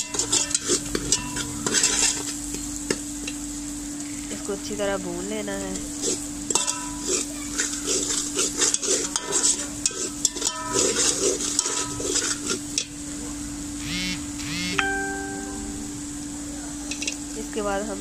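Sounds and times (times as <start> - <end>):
metal spatula scraping steel pot: 0.0 - 2.4, 6.0 - 12.9
light sizzle: 0.0 - 18.0
steady low hum: 0.0 - 18.0.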